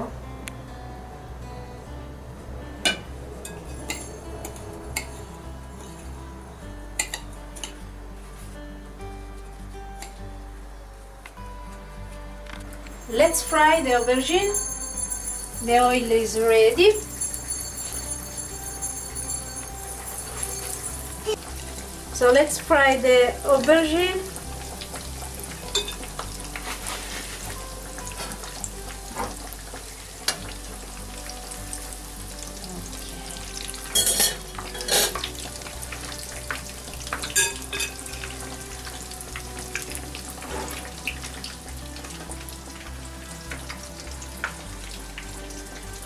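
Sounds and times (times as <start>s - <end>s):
vegetables sizzling in oil: 13.0s - 46.0s.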